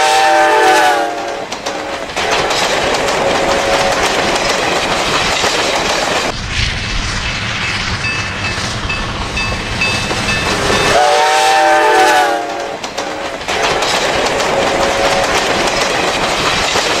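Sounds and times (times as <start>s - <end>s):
train horn: 0.0s - 1.5s, 3.5s - 4.0s, 10.9s - 13.2s, 14.8s - 15.4s
train wheels clattering over rails: 0.0s - 6.3s, 7.6s - 17.0s.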